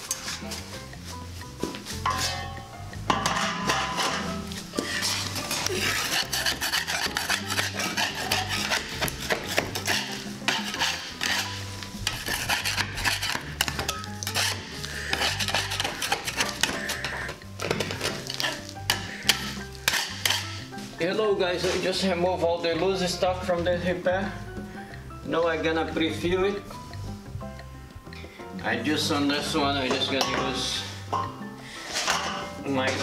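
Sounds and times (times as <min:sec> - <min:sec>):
background music with bass line: 0:00.0 - 0:33.0
putty knife scraping wall: 0:03.6 - 0:20.7.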